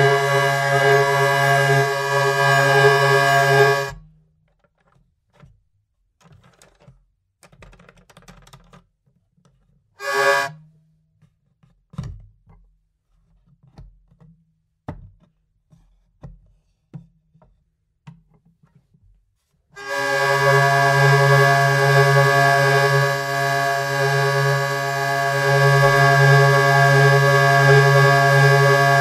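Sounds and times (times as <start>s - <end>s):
hurdy-gurdy droning bowed note: 0.0s - 4.0s, 10.0s - 10.5s, 19.8s - 29.0s
hurdy-gurdy scraping strokes: 0.0s - 4.0s, 10.0s - 10.5s, 19.8s - 29.0s.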